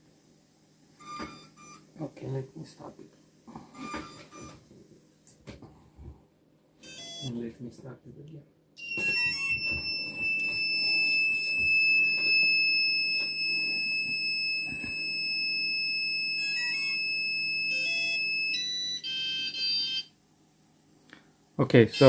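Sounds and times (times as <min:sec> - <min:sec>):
short electronic beeps: 0:01.0 - 0:01.8, 0:03.8 - 0:04.6
electronic beeper tone: 0:03.8 - 0:04.6, 0:08.8 - 0:15.7
stepped electronic tones: 0:08.8 - 0:15.1.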